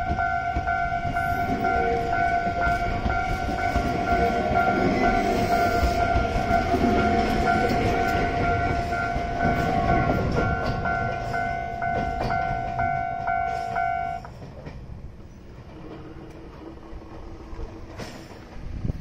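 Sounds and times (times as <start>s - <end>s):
level crossing alarm ringing: 0.0s - 14.3s
electric train rumbling: 0.0s - 19.0s.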